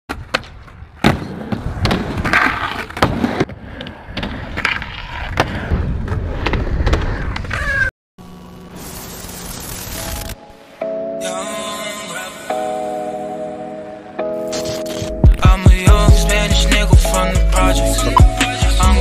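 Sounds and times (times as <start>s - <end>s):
skateboard clacks and thuds: 0.1s - 7.6s
skateboard rolling on hard ground: 0.1s - 7.8s.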